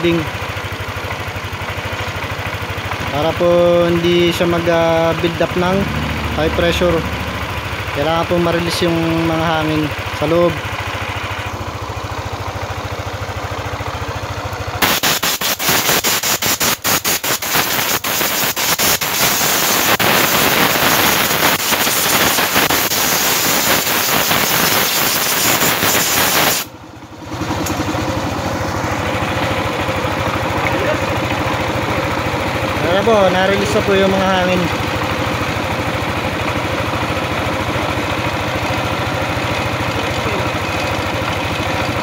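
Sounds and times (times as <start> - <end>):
scooter engine idling: 0.0 - 15.5, 16.2 - 26.0, 26.6 - 42.0
rapid crackling rattle: 14.8 - 26.7.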